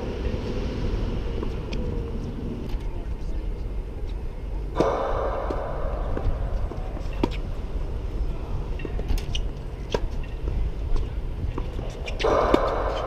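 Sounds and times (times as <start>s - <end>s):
steady low rumble: 0.0s - 13.0s
tennis racket hitting ball: 4.8s - 8.0s, 11.6s - 13.0s
tennis ball bouncing: 4.8s - 8.2s, 8.8s - 13.0s.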